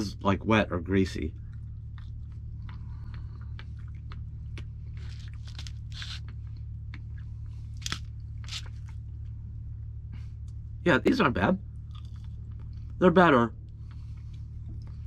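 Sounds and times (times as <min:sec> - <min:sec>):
low hum: 0:00.0 - 0:15.0
person chewing fries: 0:01.4 - 0:09.1, 0:11.7 - 0:13.0.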